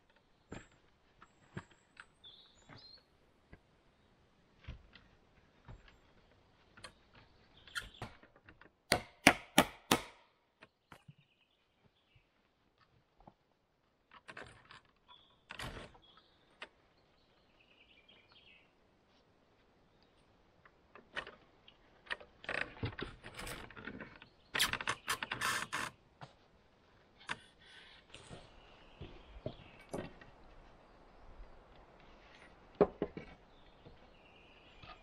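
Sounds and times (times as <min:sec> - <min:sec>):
faint bird chirping: 0:15.0 - 0:18.8, 0:27.2 - 0:32.5, 0:33.3 - 0:35.0
logs knocking and clunking: 0:28.2 - 0:30.7, 0:32.4 - 0:34.1.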